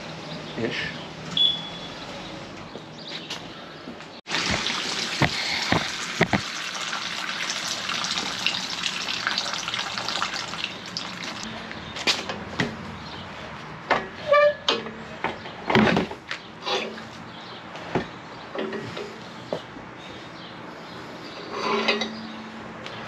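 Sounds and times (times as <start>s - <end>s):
coolant pouring into plastic pan: 4.3s - 11.4s.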